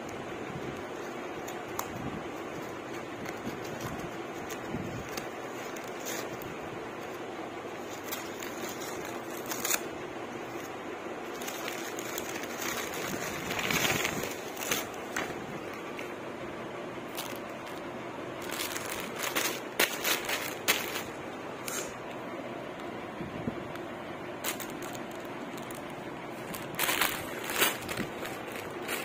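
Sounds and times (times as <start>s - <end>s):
plastic wrapping crackling: 0.1s - 16.2s, 17.1s - 21.9s, 24.4s - 29.0s
scissors snipping paper: 0.6s - 7.2s, 7.8s - 9.9s
paper rustling: 0.6s - 16.2s, 17.1s - 21.9s, 24.4s - 29.0s.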